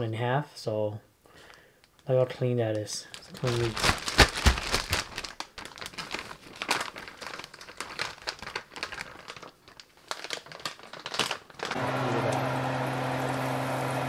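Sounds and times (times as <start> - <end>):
plastic bag crinkling: 1.4 - 11.8.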